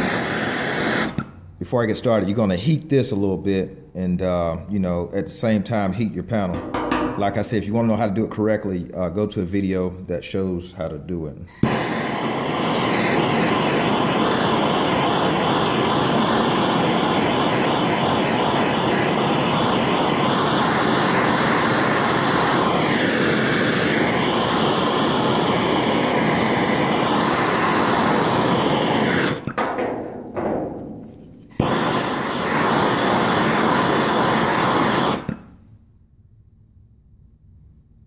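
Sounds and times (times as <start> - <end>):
gas torch rushing hiss: 0.0 - 1.4, 11.5 - 35.6.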